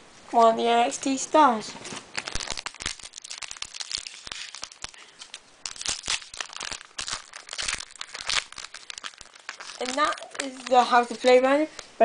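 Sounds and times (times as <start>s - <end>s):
foil wrapper crinkling: 1.8s - 11.9s.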